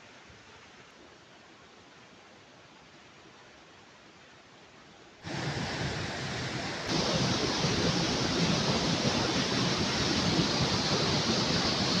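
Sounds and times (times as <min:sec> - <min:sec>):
waterfall rushing: 0:05.3 - 0:12.0.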